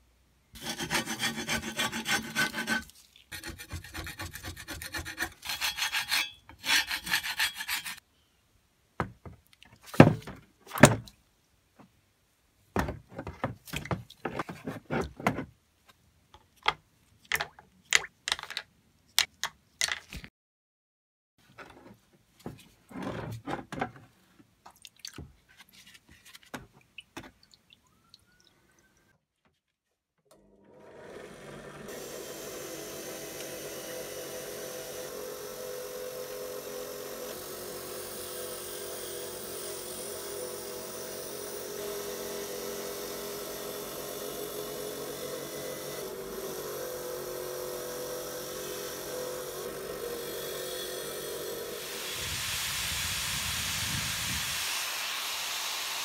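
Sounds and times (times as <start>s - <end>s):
wire wheel brushing metal: 4.8s - 8.0s.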